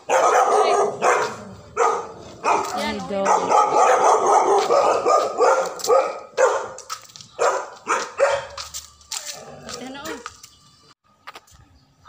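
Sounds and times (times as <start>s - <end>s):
dog barking: 0.0s - 8.7s.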